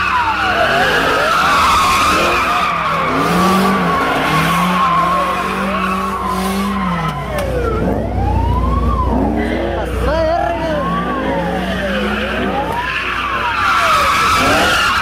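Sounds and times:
car tyres squealing: 0.0 - 8.0, 9.0 - 15.0
engines revving: 0.0 - 15.0.

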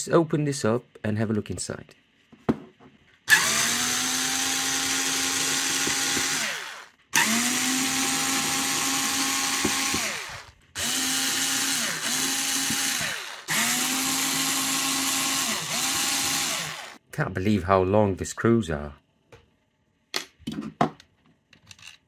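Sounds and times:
cordless screwdriver whining: 3.3 - 17.0.

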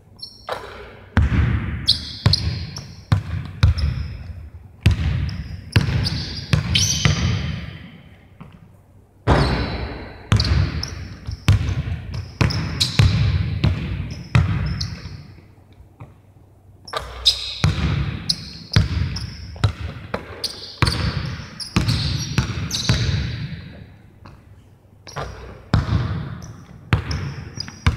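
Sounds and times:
shoe squeaks: 0.2 - 0.8, 1.9 - 3.1, 3.7 - 4.4, 5.3 - 7.5, 9.3 - 13.1, 14.1 - 15.5, 16.9 - 19.6, 20.4 - 23.2, 25.0 - 25.6, 26.4 - 27.9
basketball bouncing on court: 0.2 - 8.7, 9.3 - 15.3, 16.9 - 24.4, 25.1 - 27.9.

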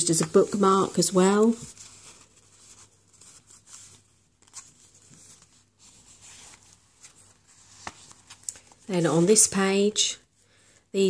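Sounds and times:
pages turning: 0.1 - 9.7
paper rustling and tapping: 7.1 - 8.8.

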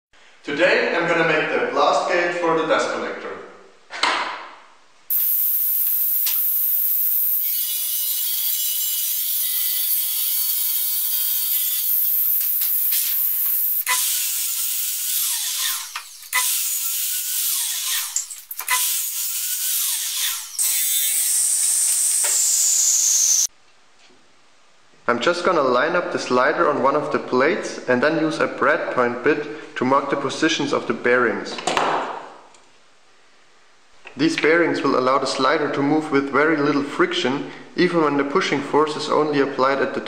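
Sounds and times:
power saw cutting plywood: 5.1 - 23.5
table saw running: 5.1 - 23.5
mitre saw whine spinning down: 19.4 - 23.5.

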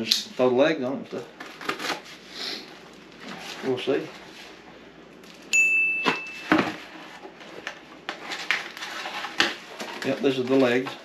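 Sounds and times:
cardboard rustling and tearing: 1.4 - 2.2, 6.6 - 11.0
bell ding sound effect: 5.5 - 6.6.

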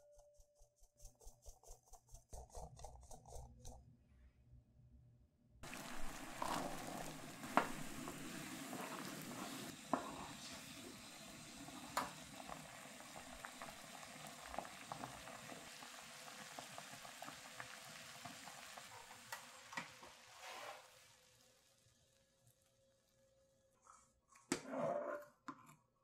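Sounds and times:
wooden spoon stirring: 5.6 - 10.6
water bubbling at a boil: 5.6 - 19.2.

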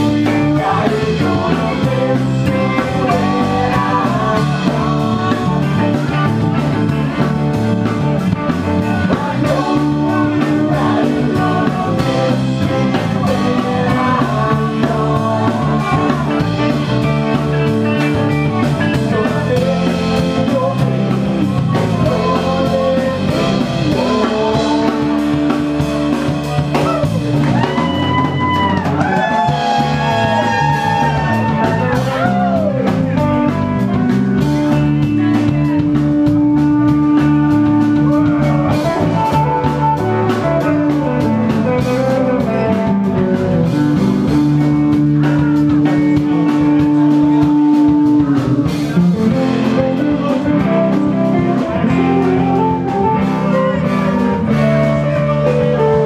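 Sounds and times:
lead guitar bending notes: 0.0 - 56.0
rock band playing: 0.0 - 56.0.

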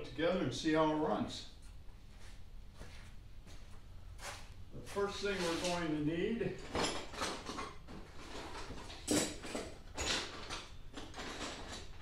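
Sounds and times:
scuffs on concrete floor: 1.6 - 5.9.

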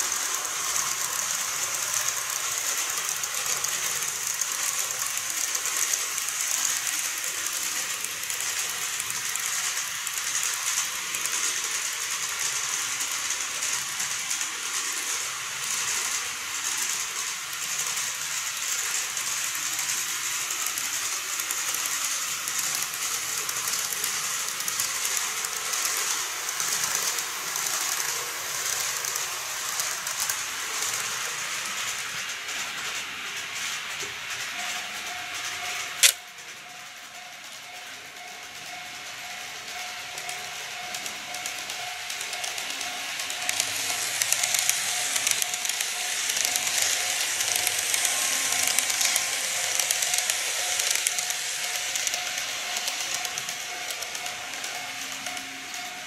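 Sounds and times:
model train motor whirring: 0.0 - 56.0
wheels clicking over rail joints: 0.0 - 56.0.

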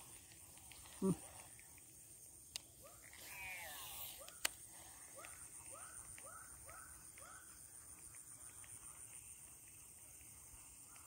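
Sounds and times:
high insect hum: 0.0 - 11.0
fishing reel whining: 2.9 - 5.1.

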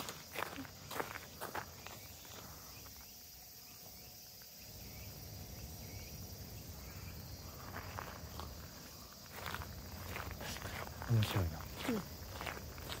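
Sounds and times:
footsteps on gravel: 0.0 - 3.0, 7.5 - 13.0
insects droning: 0.0 - 13.0.

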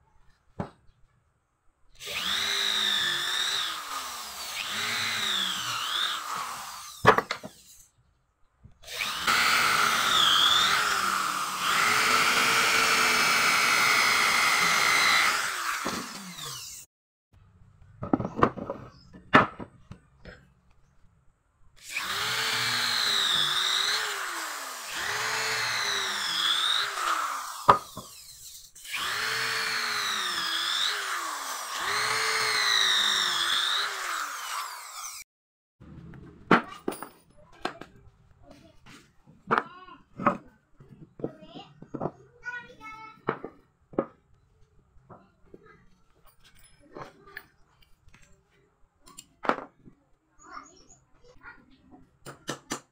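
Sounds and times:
electric drill boring into wood: 2.0 - 7.8, 8.8 - 16.9, 21.8 - 35.3.

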